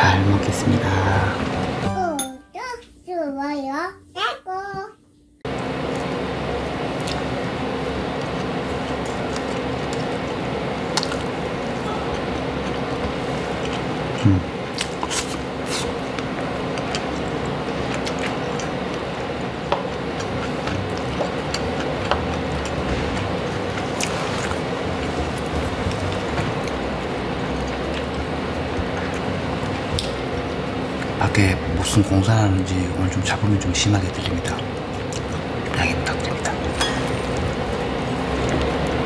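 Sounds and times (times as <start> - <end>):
steady humming background noise: 0.0 - 39.0
person chewing wetly: 5.5 - 31.2, 34.3 - 39.0.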